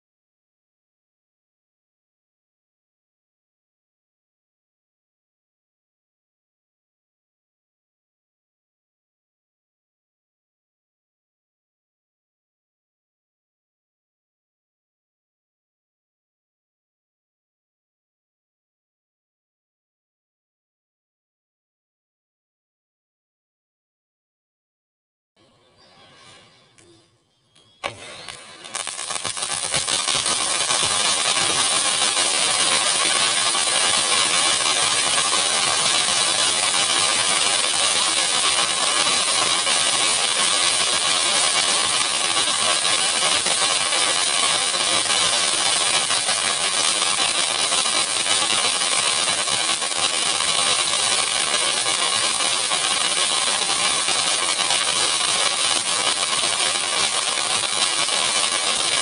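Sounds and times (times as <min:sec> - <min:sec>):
fountain firework hissing: 0:27.8 - 0:59.0.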